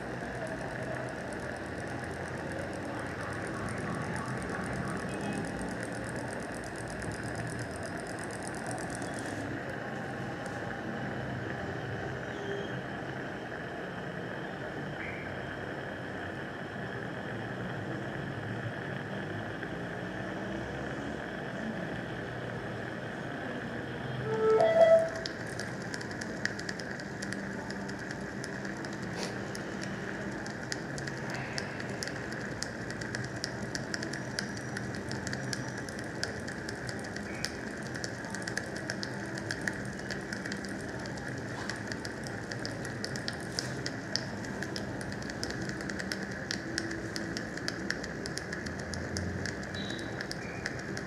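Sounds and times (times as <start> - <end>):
short pitched sound: 24.2 - 25.2.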